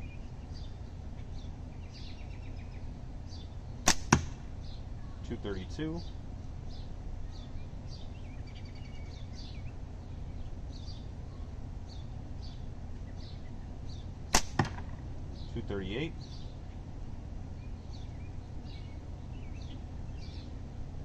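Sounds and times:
ball hitting target: 3.9s - 4.5s, 14.4s - 15.0s.

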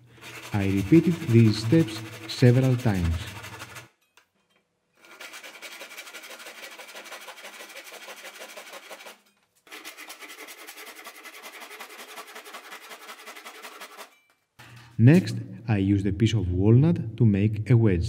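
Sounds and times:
handsaw cutting wood: 0.0s - 3.9s, 5.0s - 14.2s.

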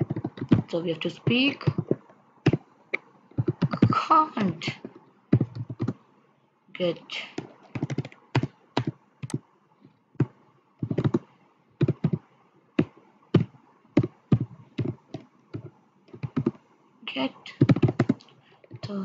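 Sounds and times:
typing on computer keyboard: 0.0s - 2.6s, 3.4s - 4.0s, 4.7s - 6.0s, 7.4s - 9.4s, 10.2s - 12.2s, 12.8s - 16.6s, 17.5s - 19.0s.

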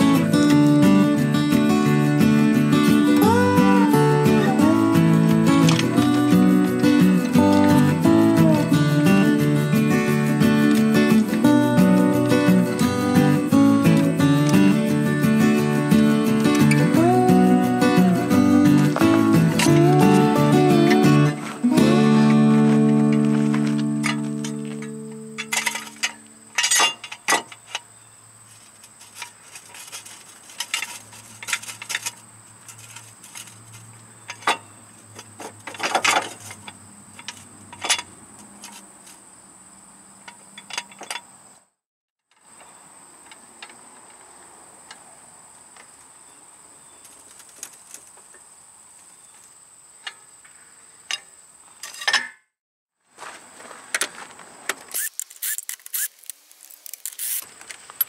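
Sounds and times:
high insect drone: 0.0s - 41.6s, 54.5s - 58.0s
metallic clinks of hand tools: 24.0s - 27.9s.

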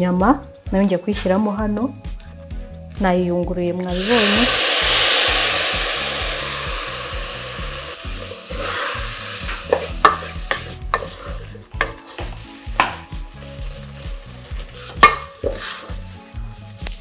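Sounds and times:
rice sizzling: 3.9s - 17.0s
spatula scraping metal pot: 8.0s - 16.4s.

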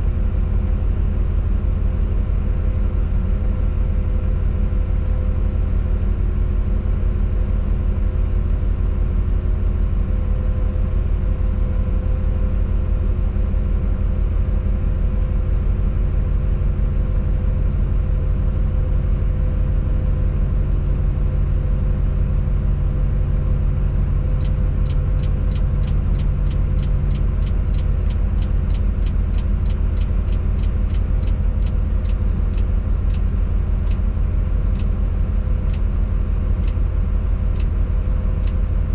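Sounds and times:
diesel engine running: 0.0s - 38.9s
rapid regular ticking: 24.4s - 33.2s.

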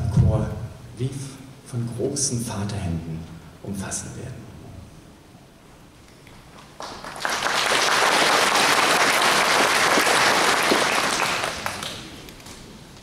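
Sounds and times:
audience applauding: 6.4s - 12.6s.

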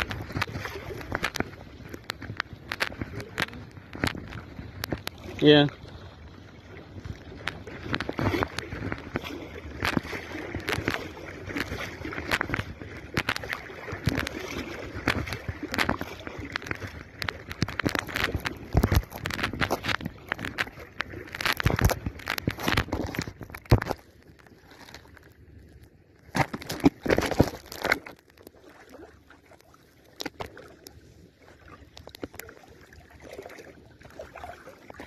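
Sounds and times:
water splashing around wading legs: 0.0s - 35.0s.

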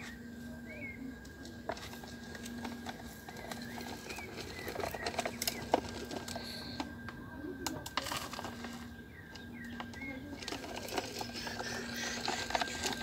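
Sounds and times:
faint steady hum: 0.0s - 13.0s
bird chirps: 8.7s - 12.8s.

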